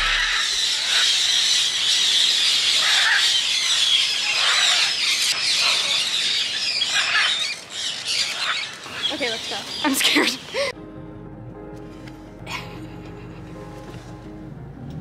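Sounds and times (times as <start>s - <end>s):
birds squawking in chorus: 0.0s - 10.7s.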